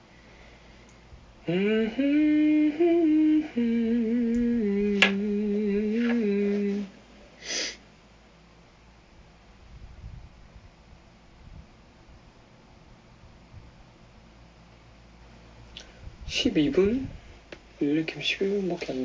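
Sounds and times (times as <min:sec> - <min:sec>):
man humming a tune: 0:01.4 - 0:07.0
short hiss: 0:07.4 - 0:07.8.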